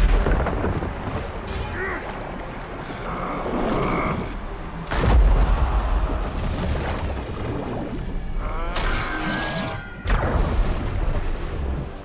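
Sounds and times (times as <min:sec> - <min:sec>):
deep rumble: 0:00.0 - 0:08.8
action film music: 0:00.0 - 0:12.0.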